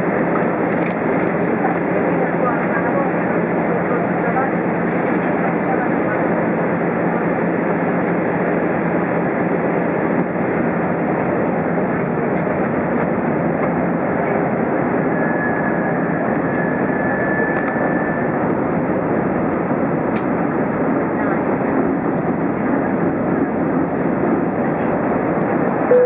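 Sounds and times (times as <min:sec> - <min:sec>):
airflow rush in aircraft cabin: 0:00.0 - 0:26.0
jet engine drone: 0:00.0 - 0:26.0.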